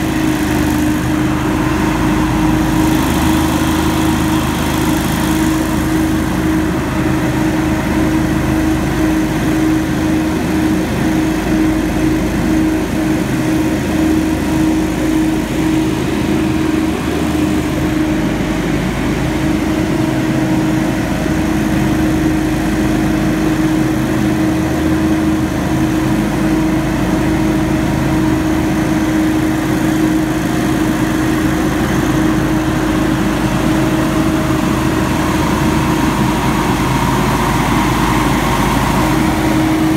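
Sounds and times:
leaf blower running: 0:00.0 - 0:39.9.

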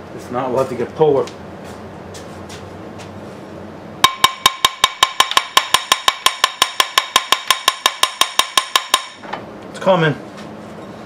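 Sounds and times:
hammer tapping on metal pulley: 0:04.0 - 0:09.2.

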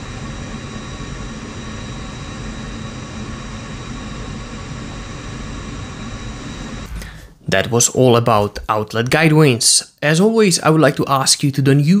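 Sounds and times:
machinery drone with whining tones: 0:00.0 - 0:07.5.

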